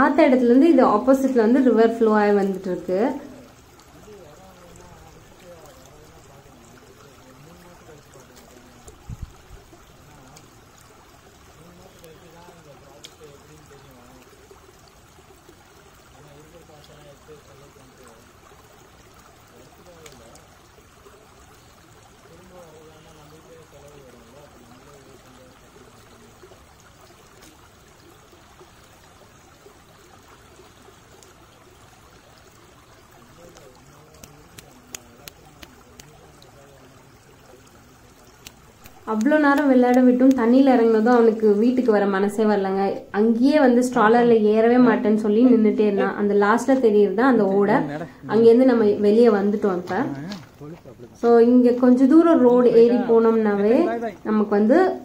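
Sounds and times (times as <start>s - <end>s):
creek trickling over pebbles: 0.0s - 55.0s
faint voices: 33.0s - 40.0s.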